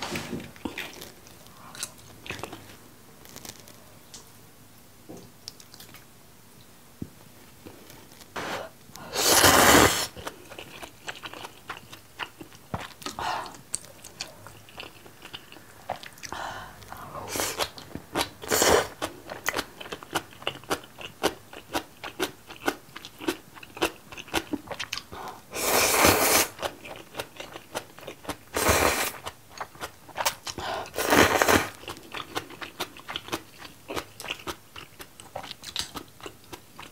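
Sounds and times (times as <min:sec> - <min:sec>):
loud noodle slurps: 0:09.1 - 0:10.2, 0:25.6 - 0:26.6
wet chewing clicks: 0:31.8 - 0:36.9.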